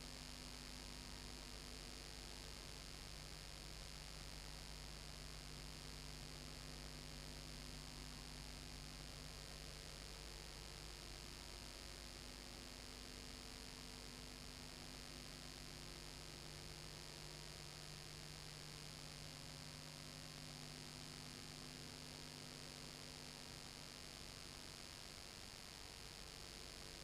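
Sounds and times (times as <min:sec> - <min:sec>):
faint electrical hum: 0:00.0 - 0:27.0.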